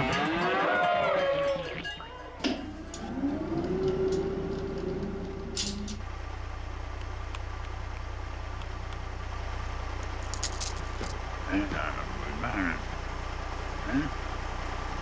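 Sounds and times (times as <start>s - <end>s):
truck engine idling: 2.0s - 15.0s.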